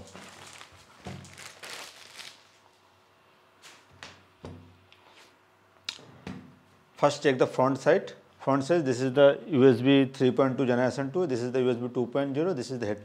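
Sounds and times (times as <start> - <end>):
plastic bag crinkling: 0.0 - 2.9.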